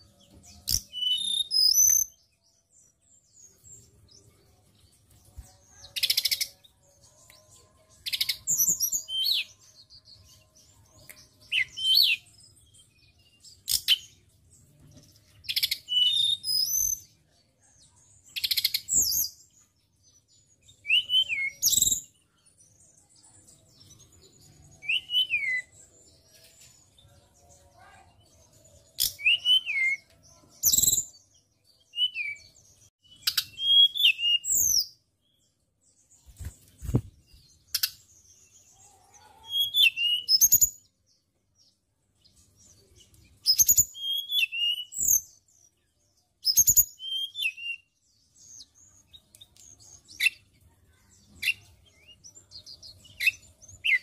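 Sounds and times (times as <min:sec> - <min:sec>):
bird singing whistled phrases: 0:00.7 - 0:02.2, 0:11.4 - 0:12.3, 0:15.6 - 0:17.0, 0:20.8 - 0:22.1, 0:24.8 - 0:25.7, 0:29.0 - 0:31.1, 0:31.8 - 0:35.0, 0:39.4 - 0:40.9, 0:43.5 - 0:45.3, 0:46.4 - 0:47.9.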